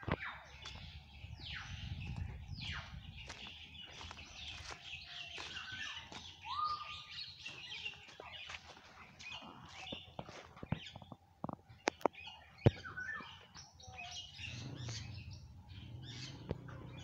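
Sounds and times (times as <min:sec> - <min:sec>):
downward sweeping bird calls: 0:00.0 - 0:11.1, 0:12.0 - 0:17.0
caged birds chirping: 0:00.0 - 0:17.0
low rumble: 0:00.6 - 0:04.8.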